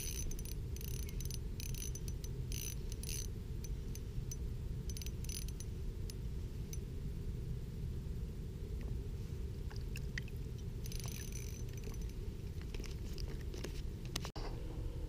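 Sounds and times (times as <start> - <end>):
fishing reel gears whirring: 0.0 - 5.6, 10.8 - 12.2
low rumble: 0.0 - 15.0.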